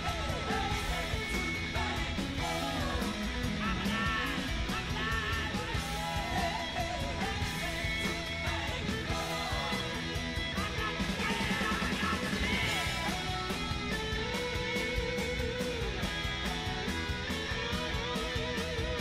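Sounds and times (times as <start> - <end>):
person singing: 0.0 - 13.4
rock music with guitar: 0.0 - 19.0.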